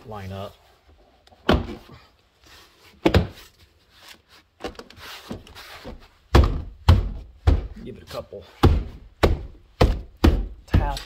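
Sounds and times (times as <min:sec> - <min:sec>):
soft rubbing rustle: 0:02.3 - 0:06.3.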